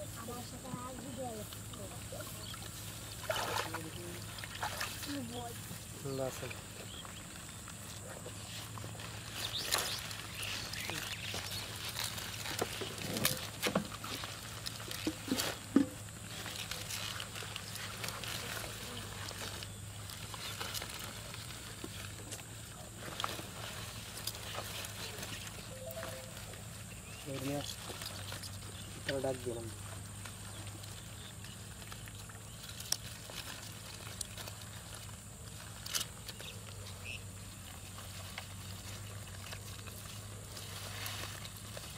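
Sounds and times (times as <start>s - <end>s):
leaves and stems rustling: 0.0s - 41.9s
low steady hum: 0.0s - 41.9s
stems snapping: 35.7s - 36.8s.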